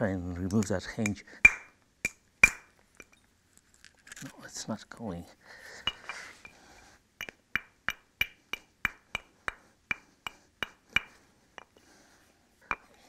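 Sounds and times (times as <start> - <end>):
antler tapping on stone: 0.4 - 3.2, 7.2 - 11.8, 12.7 - 13.0.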